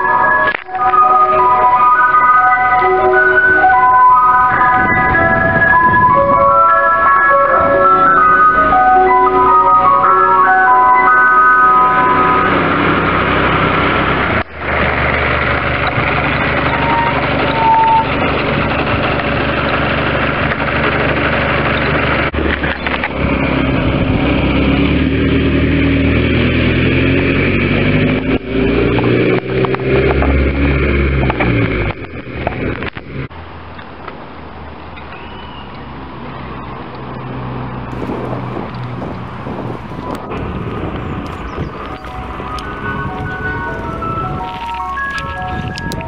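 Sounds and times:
van engine running: 12.2s - 29.2s, 37.7s - 46.0s.

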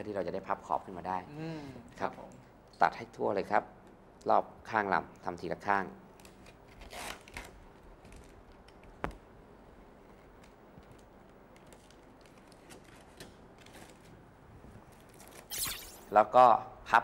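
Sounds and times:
sharp click: 15.5s - 16.2s.

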